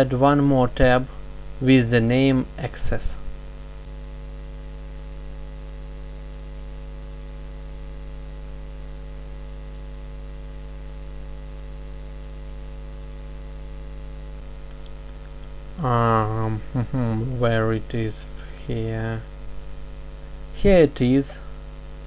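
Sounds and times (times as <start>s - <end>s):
faint hiss: 0.0s - 3.3s, 14.6s - 19.6s, 20.2s - 21.6s
electrical mains hum: 0.0s - 22.0s.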